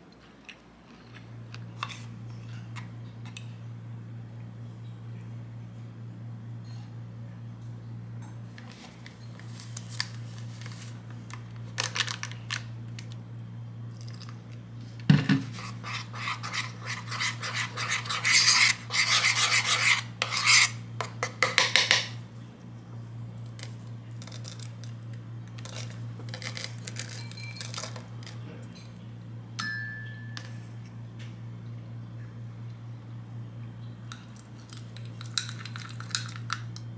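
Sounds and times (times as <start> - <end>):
steady low hum: 0.0 - 36.9
metal spoon scraping ceramic bowl: 15.5 - 21.5.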